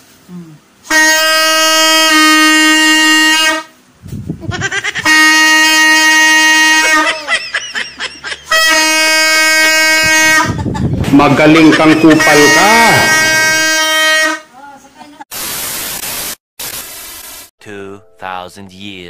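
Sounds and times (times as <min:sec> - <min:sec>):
alto saxophone slow melody: 0:00.3 - 0:03.7, 0:12.5 - 0:14.4.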